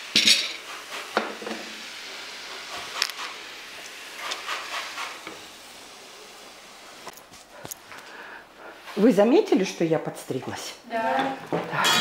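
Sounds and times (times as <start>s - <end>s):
cabbage hissing in frying pan: 0.0s - 9.4s
stirring and scraping: 4.1s - 5.4s.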